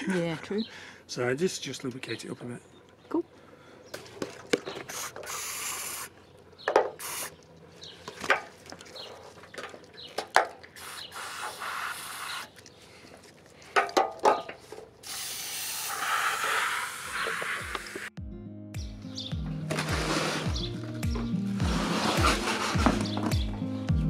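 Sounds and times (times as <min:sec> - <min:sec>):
aerosol can hissing: 0:04.9 - 0:06.1, 0:06.9 - 0:07.4, 0:10.8 - 0:12.5, 0:15.0 - 0:18.1.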